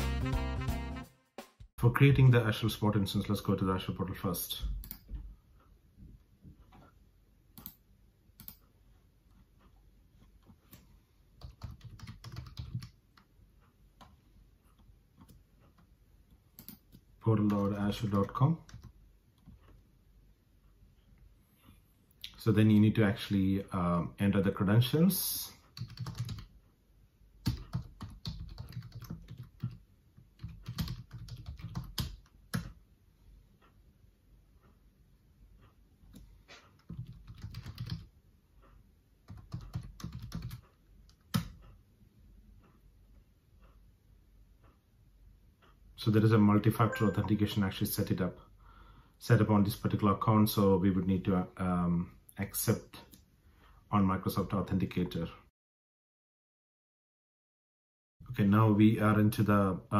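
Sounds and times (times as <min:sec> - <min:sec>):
faint keyboard typing: 0:04.4 - 0:05.7, 0:06.6 - 0:19.9, 0:25.3 - 0:26.8, 0:27.4 - 0:32.9, 0:35.6 - 0:41.8.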